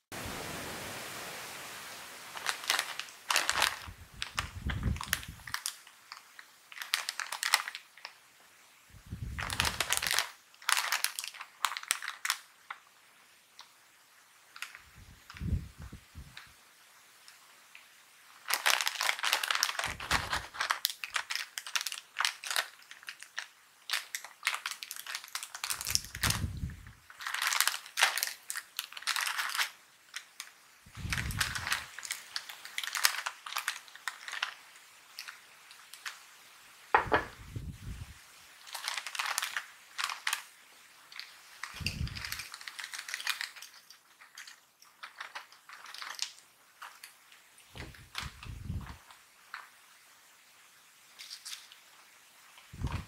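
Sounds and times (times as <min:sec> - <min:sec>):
chip bag crinkling: 0:02.3 - 0:08.2, 0:09.2 - 0:13.0, 0:14.5 - 0:15.6, 0:18.3 - 0:36.4, 0:38.6 - 0:49.8, 0:51.1 - 0:52.0.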